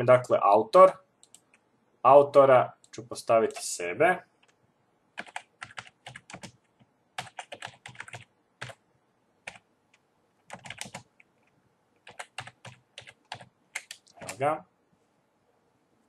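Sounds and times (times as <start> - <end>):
typing on computer keyboard: 5.2 - 6.6, 7.2 - 8.8, 10.5 - 11.1, 12.0 - 14.4.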